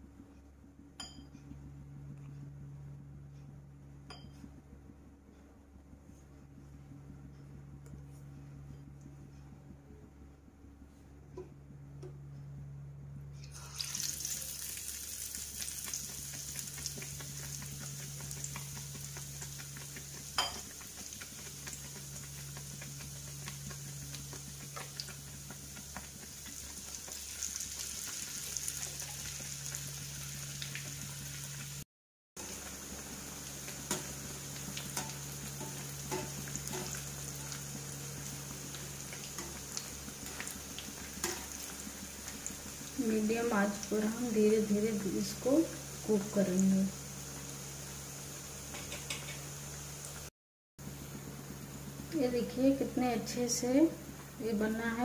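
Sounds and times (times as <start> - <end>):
bread deep-frying in hot oil: 13.4 - 31.8, 32.4 - 50.3, 50.9 - 55.0
utensil clicking against pan: 33.9 - 37.6.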